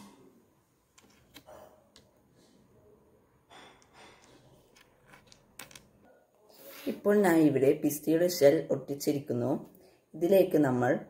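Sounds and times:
soft clicks of shells on cardboard: 3.5s - 6.0s.

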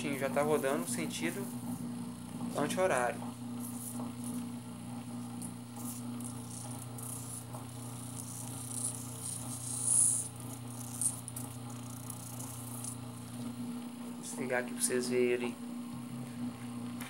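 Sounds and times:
scratchy rustling on spinning pulley: 0.0s - 13.9s
electric motor humming: 0.0s - 17.0s.

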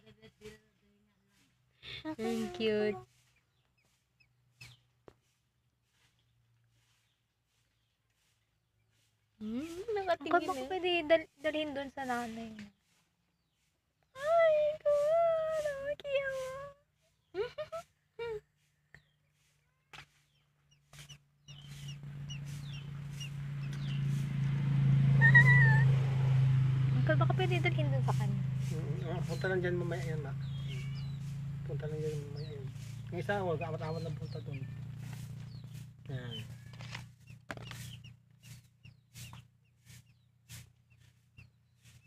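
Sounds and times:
low motor hum: 1.5s - 3.8s, 20.4s - 42.0s
ducklings peeping: 2.1s - 4.9s, 20.2s - 24.3s, 25.2s - 26.0s, 27.4s - 42.0s
wavering higher tone: 25.0s - 26.0s.

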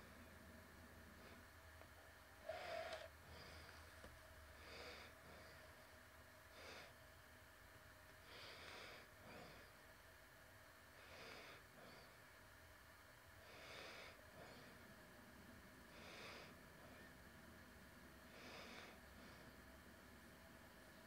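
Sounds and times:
person breathing faintly: 2.4s - 7.0s, 8.2s - 9.8s, 15.8s - 17.1s.

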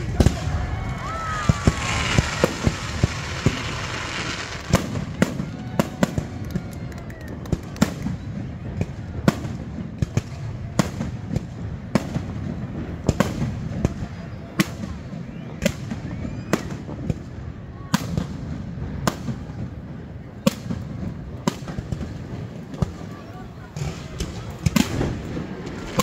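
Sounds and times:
rockets hissing: 0.0s - 5.2s.

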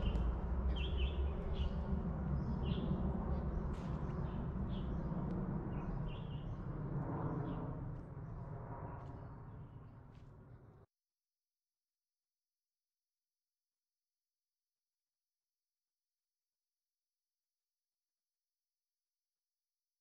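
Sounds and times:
small birds chirping: 0.0s - 5.1s
low rumble: 0.0s - 10.7s.

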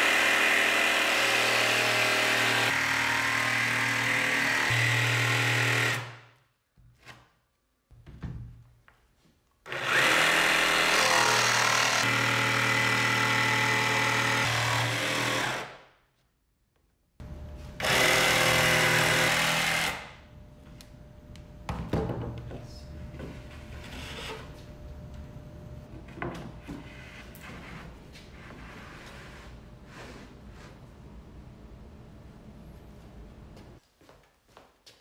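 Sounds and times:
jigsaw cutting plywood: 0.0s - 6.2s, 9.7s - 15.8s, 17.8s - 20.1s.

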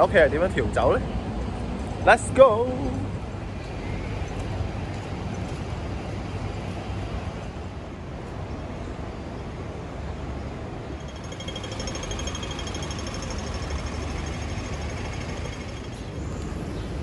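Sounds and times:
road traffic rumble: 0.0s - 17.0s.

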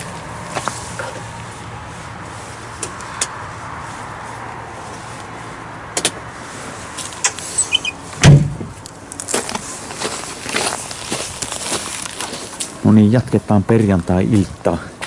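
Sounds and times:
heavy door slamming shut: 8.2s - 8.7s.

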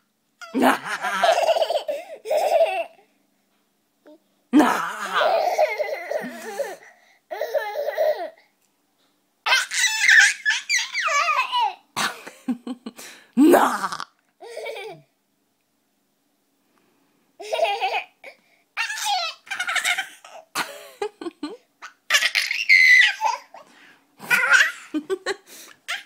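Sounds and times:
toddler giggling: 0.4s - 3.0s, 4.8s - 8.3s, 17.4s - 18.1s, 18.8s - 23.6s.

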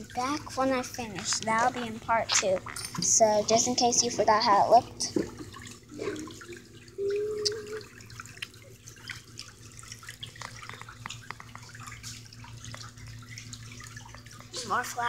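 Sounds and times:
steady low hum: 0.0s - 15.0s
water churning in foot tub: 0.0s - 15.0s.

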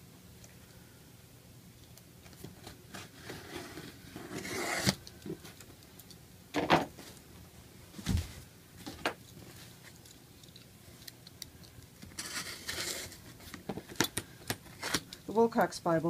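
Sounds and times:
packing tape rasping: 10.0s - 15.2s.

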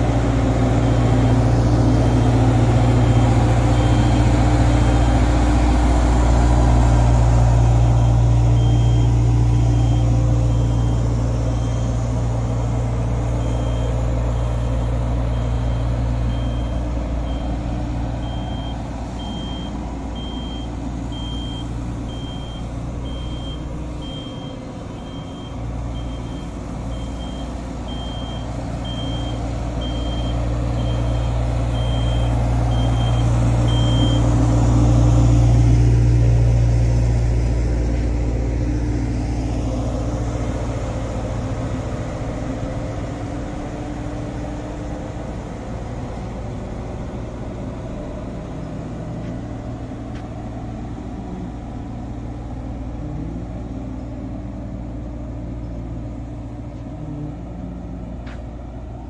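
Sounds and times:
road roller diesel engine running: 0.0s - 59.0s
reversing alarm beeping: 2.0s - 5.3s, 7.6s - 17.6s, 18.2s - 34.3s.

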